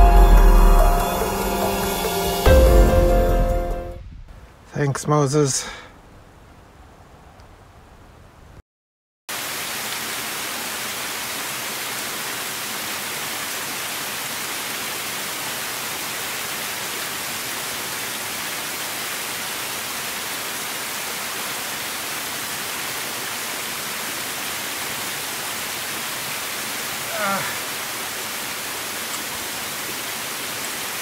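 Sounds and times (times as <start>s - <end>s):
falling water hissing: 9.3s - 31.0s.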